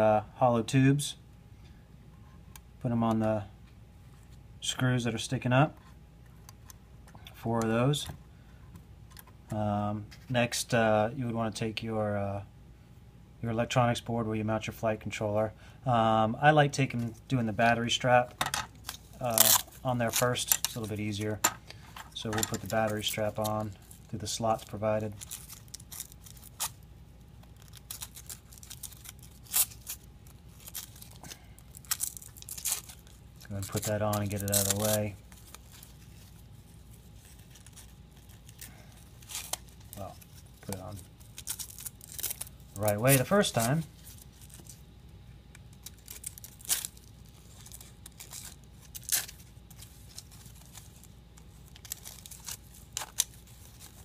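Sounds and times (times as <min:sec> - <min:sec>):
fabric strap rustling and scraping: 0:18.8 - 0:44.9, 0:45.7 - 0:54.0.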